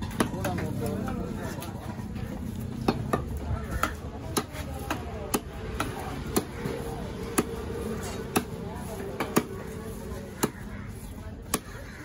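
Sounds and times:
knife chopping fish on wood: 2.8 - 6.6, 10.3 - 10.6, 11.4 - 12.0.

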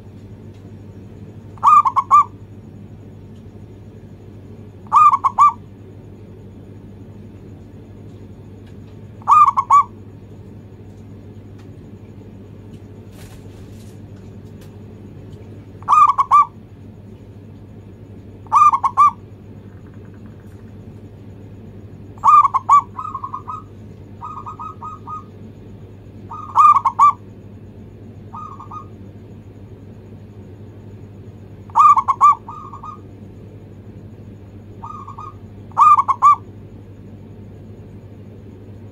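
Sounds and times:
dove cooing: 1.6 - 2.5, 4.8 - 5.7, 9.0 - 10.0, 15.6 - 16.6, 18.4 - 20.9, 22.1 - 25.5, 26.2 - 27.3, 28.2 - 29.1, 31.6 - 33.2, 34.7 - 36.5.

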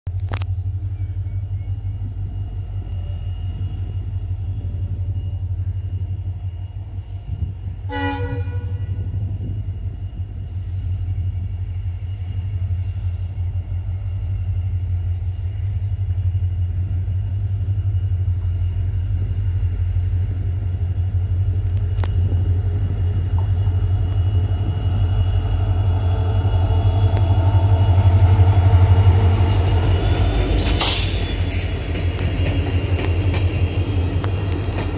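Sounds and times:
locomotive engine rumble: 0.1 - 34.9
locomotive horn blast: 7.8 - 9.2
train wheels: 9.0 - 34.9.

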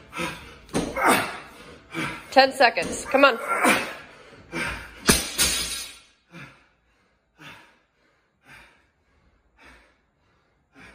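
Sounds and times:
heavy breathing: 6.2 - 10.9.

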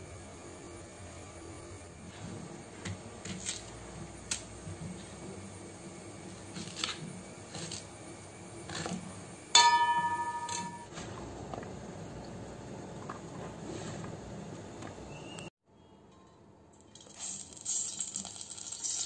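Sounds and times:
loud metallic ring: 9.6 - 10.9.

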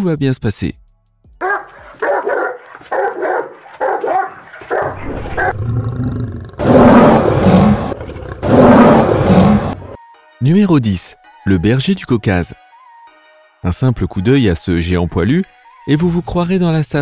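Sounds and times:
dog barking: 1.4 - 5.6
lion roaring: 3.8 - 10.0.

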